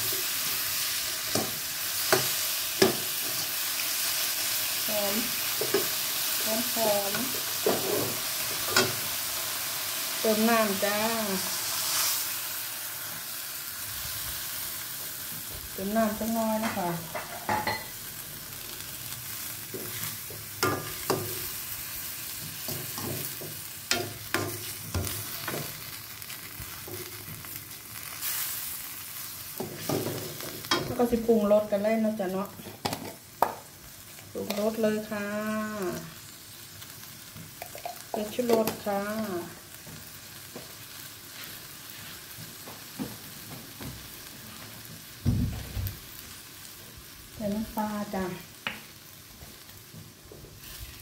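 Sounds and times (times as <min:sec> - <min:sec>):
meat sizzling in a wok: 0:00.0 - 0:51.0
spoon knocking and scraping pan: 0:01.3 - 0:03.5, 0:05.5 - 0:06.0, 0:07.1 - 0:09.0, 0:16.5 - 0:17.9, 0:19.7 - 0:21.6, 0:22.4 - 0:25.8, 0:29.6 - 0:31.2, 0:32.6 - 0:33.7.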